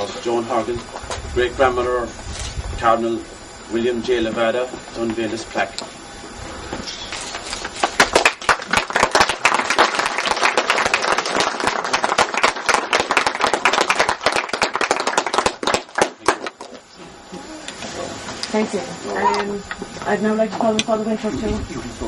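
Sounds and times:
crowd clapping: 0:07.8 - 0:16.8.

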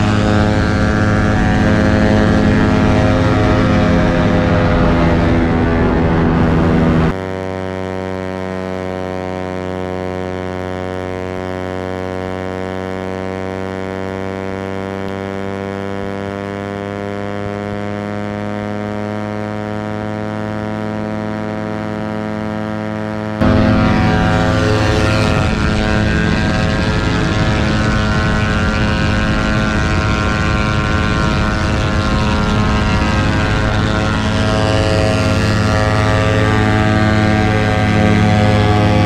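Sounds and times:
rush of noise: 0:00.0 - 0:07.2, 0:23.0 - 0:39.0
motorcycle engine at high revs: 0:00.0 - 0:39.0.

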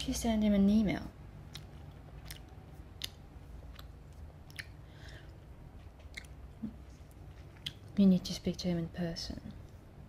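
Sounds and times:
faint low hum: 0:00.0 - 0:10.0
gum chewing clicks: 0:01.4 - 0:08.0.

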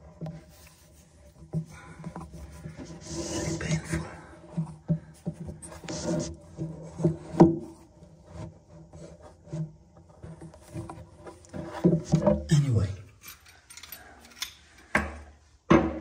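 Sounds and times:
knocks and rubbing in cabinet: 0:15.0 - 0:16.0.

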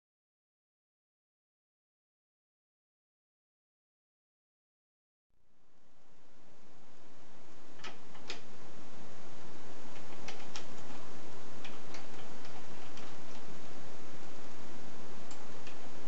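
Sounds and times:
steady hiss: 0:05.4 - 0:16.0.

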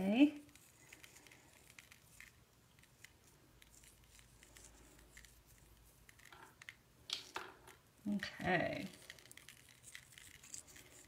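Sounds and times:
salt grains ticking on paper: 0:08.0 - 0:11.0.

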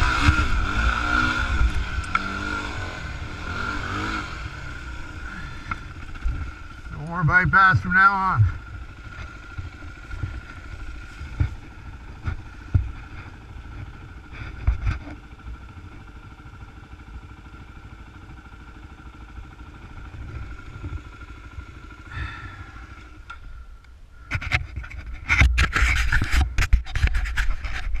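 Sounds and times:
loud rough noise: 0:00.0 - 0:16.1, 0:19.2 - 0:28.0
dirt bike engine idling: 0:00.0 - 0:27.8
knocks and scrapes: 0:09.2 - 0:15.2, 0:24.3 - 0:28.0.

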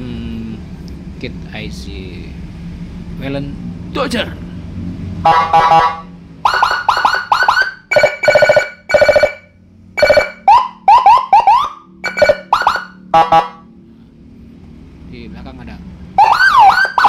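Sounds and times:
siren chirps and horn blasts: 0:05.2 - 0:13.7, 0:16.2 - 0:17.0.

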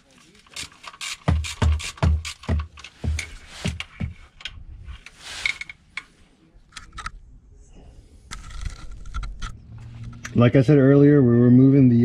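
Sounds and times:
hand ratchet clicking: 0:00.5 - 0:03.8
brief rustle: 0:02.8 - 0:07.1, 0:08.3 - 0:10.4.

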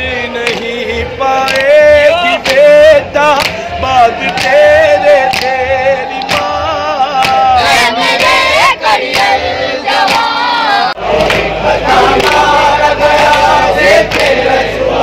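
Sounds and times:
man singing a lament: 0:00.0 - 0:08.0
crowd of men chanting: 0:00.0 - 0:15.0
hands slapping chests: 0:03.4 - 0:03.6, 0:07.2 - 0:07.4.

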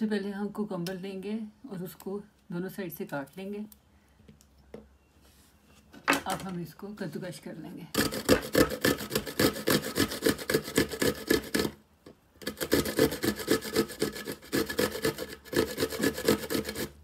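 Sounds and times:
cucumber grated on metal grater: 0:08.0 - 0:11.8, 0:12.4 - 0:17.0.

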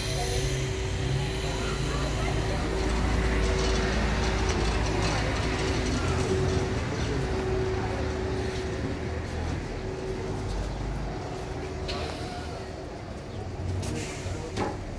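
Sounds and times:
steady hum: 0:00.0 - 0:08.5
vehicle rumbling in motion: 0:00.0 - 0:14.9.

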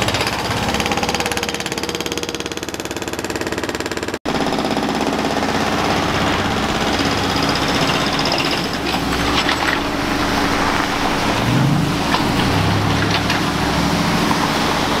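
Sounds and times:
diesel engines droning: 0:04.4 - 0:15.0
passing car traffic: 0:05.9 - 0:15.0.

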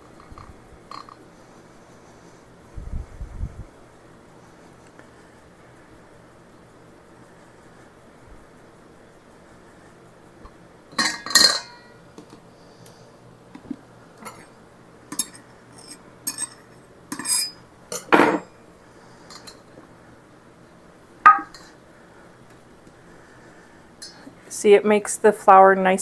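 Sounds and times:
cup and strainer clinking on glass and metal: 0:11.0 - 0:11.9, 0:15.1 - 0:18.4.

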